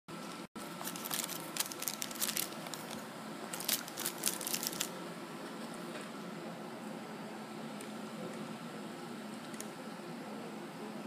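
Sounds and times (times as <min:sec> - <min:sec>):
paper wrapper crinkling: 0:00.6 - 0:04.9.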